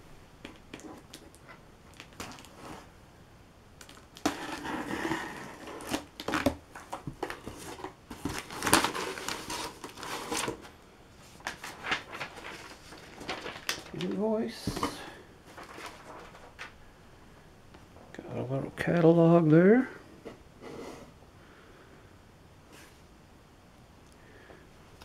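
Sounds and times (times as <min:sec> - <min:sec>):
cardboard flaps tearing and rustling: 0:04.2 - 0:10.7, 0:11.4 - 0:16.6.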